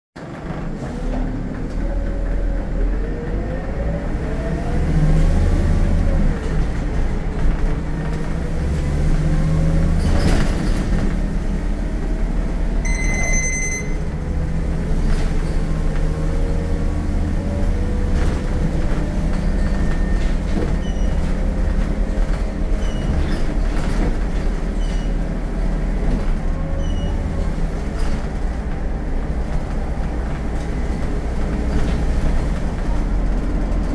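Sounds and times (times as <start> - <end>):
bus diesel engine accelerating: 0.2 - 33.9
short electronic beep: 12.8 - 14.2.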